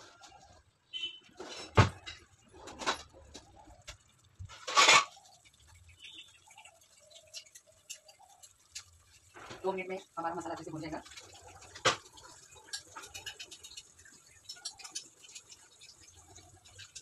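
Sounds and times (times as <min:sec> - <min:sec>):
metal utensil scraping cookware: 0:04.5 - 0:05.4, 0:11.0 - 0:17.0.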